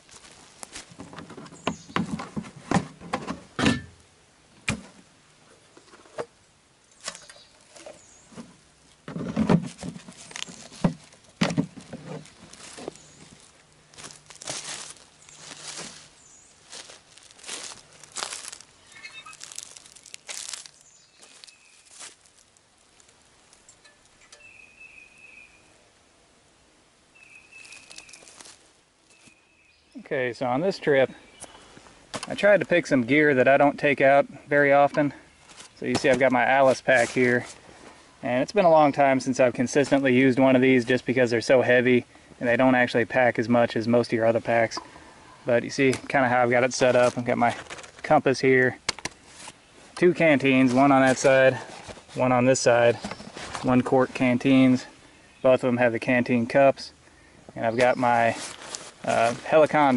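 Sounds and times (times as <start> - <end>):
leaves rustling: 0.0 - 3.4, 6.8 - 59.9
high bird call note: 18.8 - 19.4
lantern wire clicks and rattles: 23.6 - 24.5.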